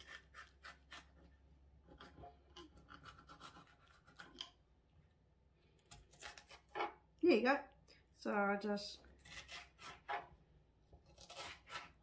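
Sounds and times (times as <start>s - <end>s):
knife cutting on a cutting board: 2.0s - 4.4s, 11.0s - 12.0s.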